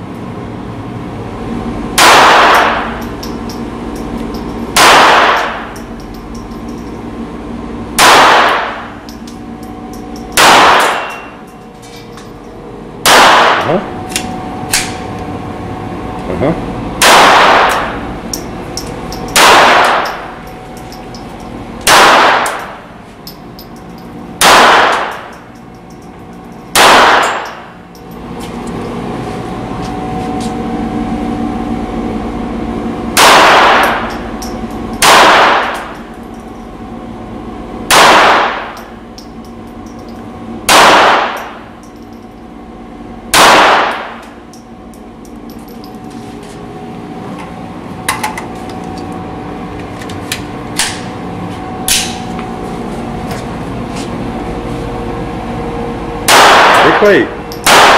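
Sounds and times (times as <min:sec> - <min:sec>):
steady background hum: 0:00.0 - 0:57.9
pistol shots ringing indoors: 0:02.0 - 0:03.2, 0:04.7 - 0:05.8, 0:08.0 - 0:09.0, 0:10.3 - 0:11.4, 0:13.0 - 0:13.8, 0:17.0 - 0:18.0, 0:19.3 - 0:20.3, 0:21.8 - 0:22.8, 0:24.4 - 0:25.3, 0:26.7 - 0:27.7, 0:33.1 - 0:34.2, 0:35.0 - 0:36.0, 0:37.9 - 0:38.8, 0:40.7 - 0:41.6, 0:43.3 - 0:44.3, 0:56.2 - 0:57.9.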